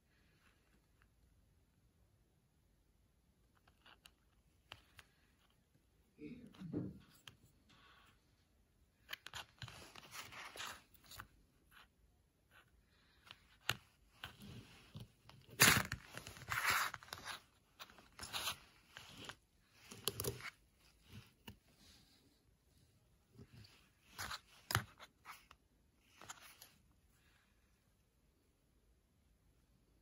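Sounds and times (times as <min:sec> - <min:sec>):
plastic cases scraping and rustling: 0:13.4 - 0:21.6.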